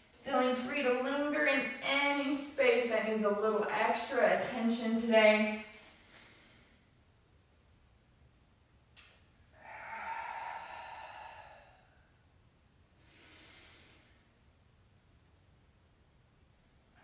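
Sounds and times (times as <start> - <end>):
woman breathing slowly: 5.8 - 7.0, 9.5 - 12.4, 13.0 - 14.6.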